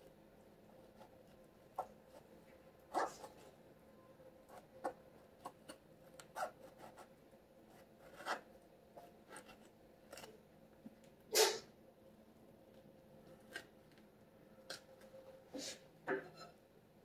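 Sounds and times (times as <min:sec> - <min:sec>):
knife cutting orange rind: 0:04.4 - 0:10.4, 0:13.2 - 0:15.0.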